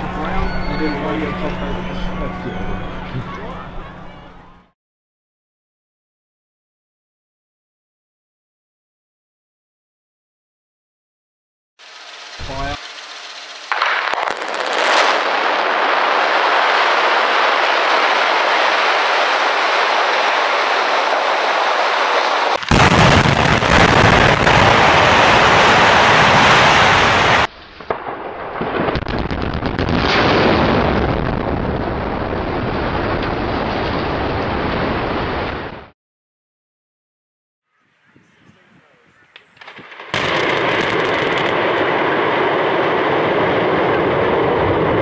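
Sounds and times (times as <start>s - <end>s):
continuous rush of noise: 0.0s - 4.7s, 11.8s - 13.9s
blasting charges cracking: 11.8s - 35.7s, 39.6s - 45.0s
deep rumble of building collapsing: 28.2s - 35.9s.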